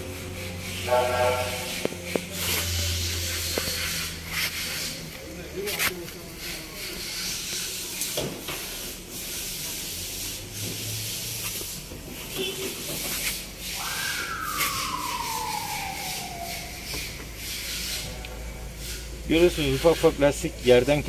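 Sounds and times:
tone sliding down in pitch: 0:13.8 - 0:17.2.

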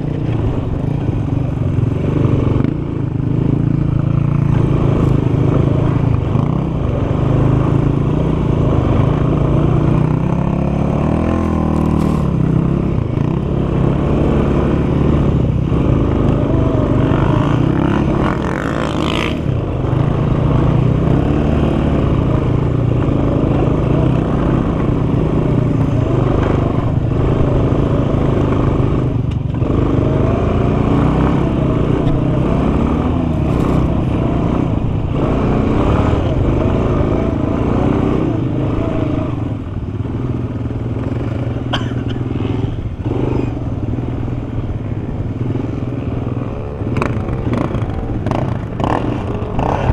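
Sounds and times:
quad bike engine revving: 0:00.0 - 0:49.9.

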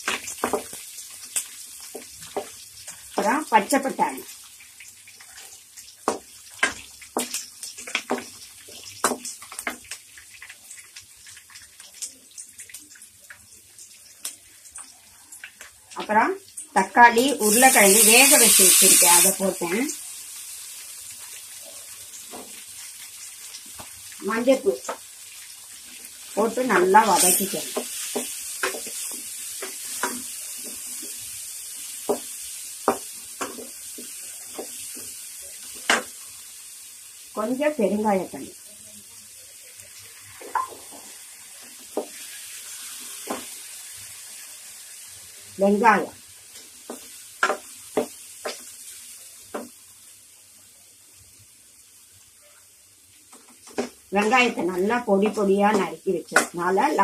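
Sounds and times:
vegetables sizzling in oil: 0:00.0 - 0:57.0
wooden spatula knocking pan: 0:27.6 - 0:31.2, 0:32.0 - 0:34.8, 0:46.8 - 0:48.6.

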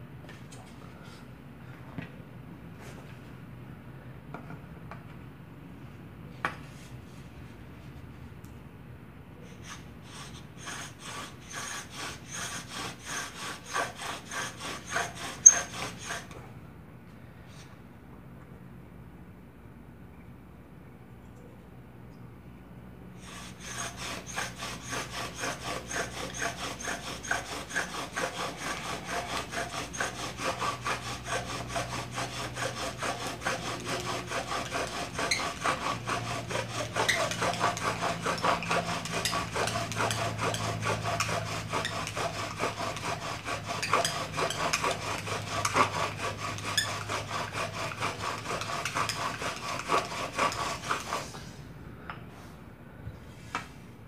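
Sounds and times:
bow drill rasping: 0:09.6 - 0:16.3, 0:23.2 - 0:51.3.

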